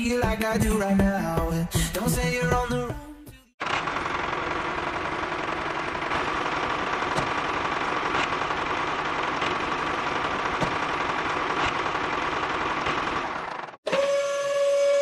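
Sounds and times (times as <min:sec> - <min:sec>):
small motor rattling: 0:03.6 - 0:13.8.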